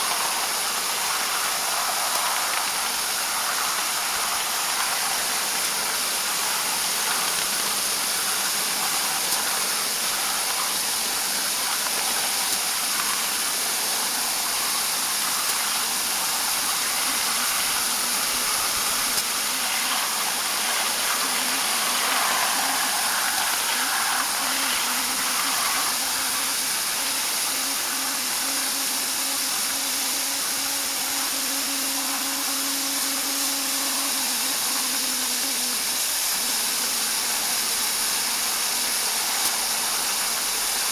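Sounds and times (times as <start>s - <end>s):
locomotive running noise: 0.0s - 40.9s
steam hissing: 0.0s - 40.9s.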